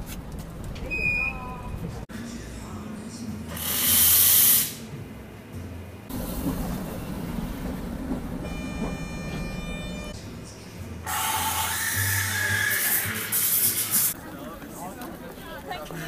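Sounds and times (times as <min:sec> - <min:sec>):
tram rumbling: 0:00.0 - 0:02.9, 0:05.3 - 0:11.1
espresso machine hiss: 0:03.6 - 0:04.8
chord of high steady tones: 0:06.2 - 0:10.4.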